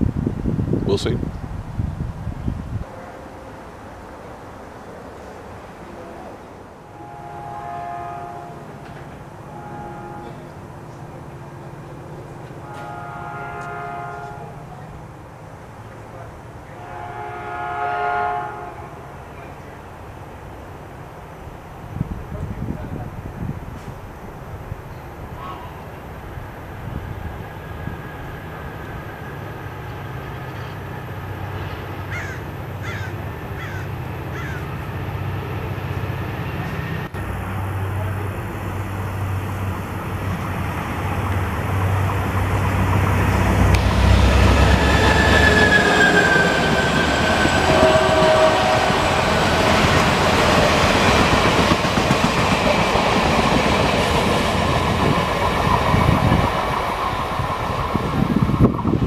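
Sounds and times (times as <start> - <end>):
locomotive engine drone: 1.5 - 59.0
train wheels rumbling on rails: 8.6 - 15.1, 19.2 - 59.0
high wheel squeal: 43.9 - 50.5.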